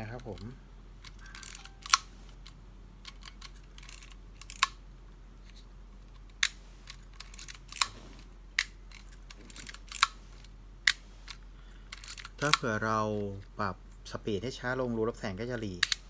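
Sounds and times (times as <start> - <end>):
film advance lever ratcheting: 0.1 - 4.8, 10.9 - 12.7.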